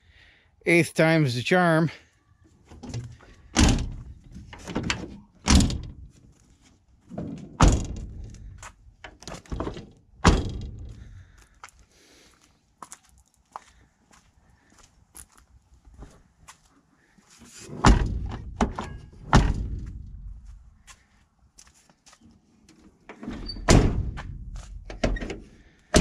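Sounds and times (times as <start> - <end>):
car doors thunking shut: 3.6 - 4.0, 7.6 - 8.2, 9.6 - 10.9, 17.8 - 19.8, 23.5 - 24.3.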